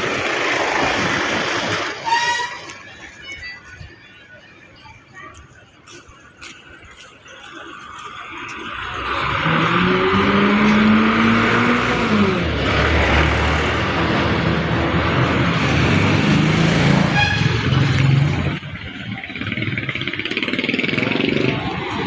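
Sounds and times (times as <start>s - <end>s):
vehicle engine passing close: 8.5s - 22.0s.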